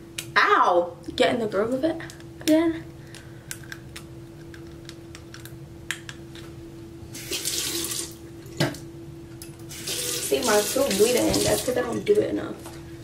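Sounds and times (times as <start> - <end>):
dental floss snapping: 3.1 - 6.2
tap water running: 7.2 - 8.8, 9.6 - 12.3.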